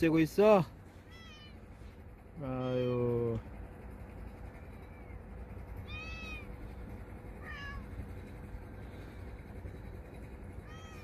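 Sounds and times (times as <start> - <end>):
cat meowing: 1.1 - 1.6, 5.8 - 6.5, 7.4 - 7.9, 10.6 - 11.0.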